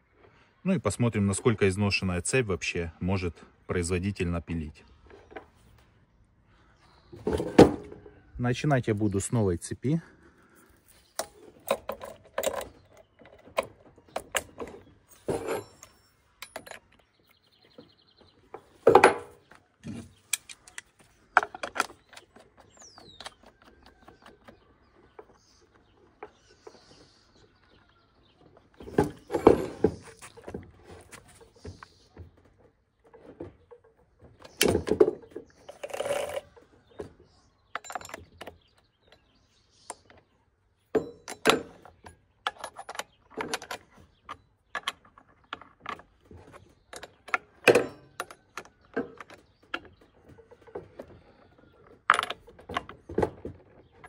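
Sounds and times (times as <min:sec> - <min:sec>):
chainsaw parts clattering: 0:11.2 - 0:17.1, 0:18.5 - 0:22.9, 0:28.8 - 0:31.2, 0:33.2 - 0:36.6, 0:41.0 - 0:54.0.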